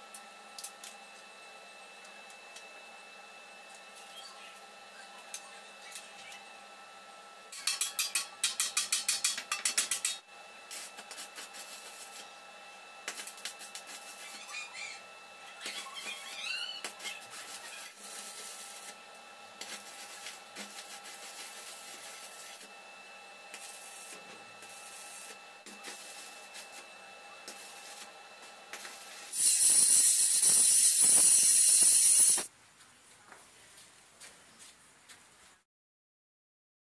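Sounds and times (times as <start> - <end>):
stick welding crackle: 7.5 - 12.3, 13.0 - 14.9, 15.6 - 19.0, 19.6 - 22.7, 23.5 - 32.5
loud rapid strokes on metal: 28.7 - 32.5
loud steady hiss: 28.8 - 32.5.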